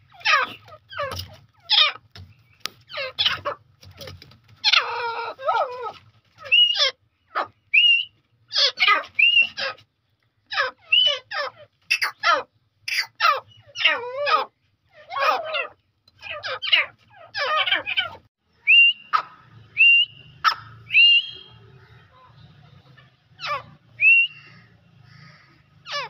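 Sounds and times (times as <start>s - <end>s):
bird calling harsh notes: 4.6s - 9.9s, 10.5s - 22.4s, 23.4s - 26.0s
whistled bird notes: 6.5s - 6.9s, 7.7s - 8.2s, 9.2s - 9.6s, 10.9s - 11.2s, 18.5s - 22.1s, 23.9s - 24.7s.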